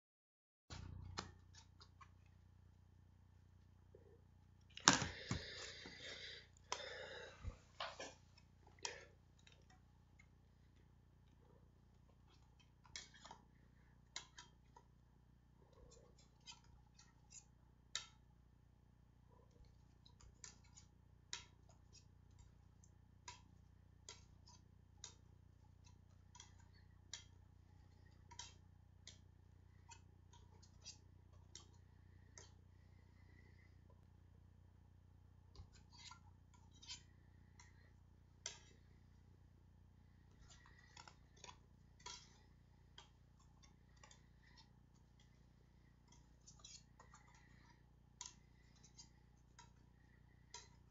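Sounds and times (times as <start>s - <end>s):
plastic discs clicking together: 40.3s - 50.9s.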